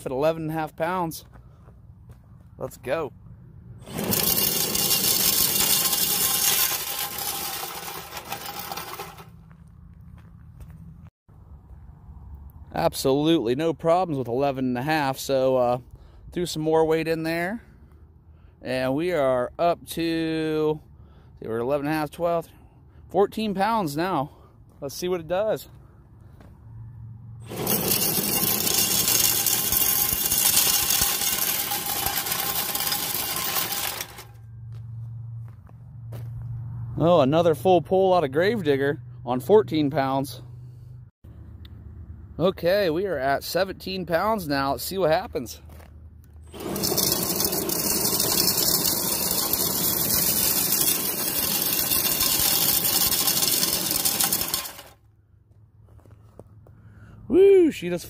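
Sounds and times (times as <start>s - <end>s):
tires and sled grinding on gravel: 3.8s - 10.8s, 27.4s - 35.5s, 43.4s - 55.0s.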